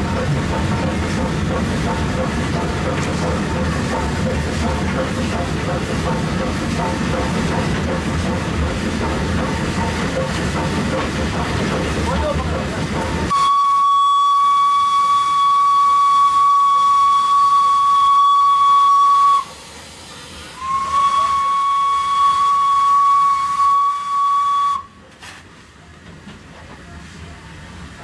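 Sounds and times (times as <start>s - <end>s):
steam locomotive whistle blasts: 13.3s - 19.6s, 20.6s - 25.0s.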